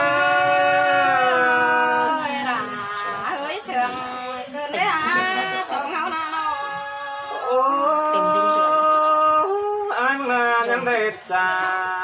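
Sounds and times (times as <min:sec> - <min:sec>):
person singing unaccompanied: 0:00.0 - 0:12.0.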